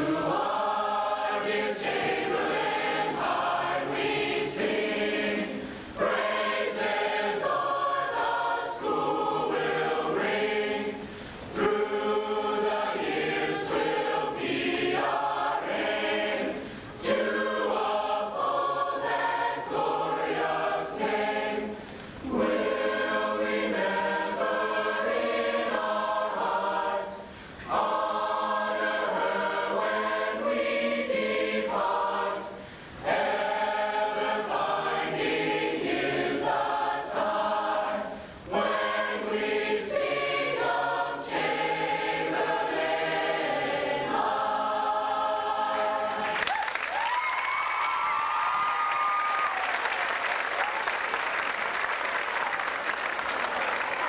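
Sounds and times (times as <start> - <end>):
mixed choir singing: 0.0 - 47.0
singers breathing: 5.5 - 6.0, 11.0 - 11.6, 16.5 - 17.0, 21.7 - 22.3, 27.2 - 27.7, 32.5 - 33.0, 38.1 - 38.5.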